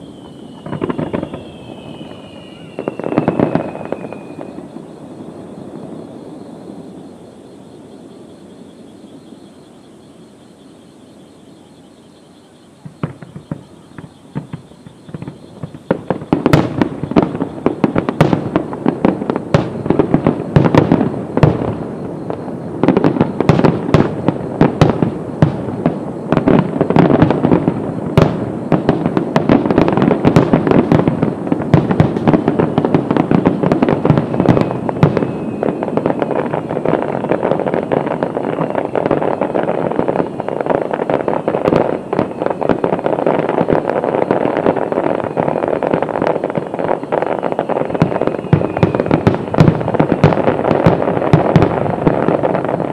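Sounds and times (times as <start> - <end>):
fireworks hissing: 0.0 - 7.0
fireworks bangs: 0.0 - 7.1, 12.4 - 52.9.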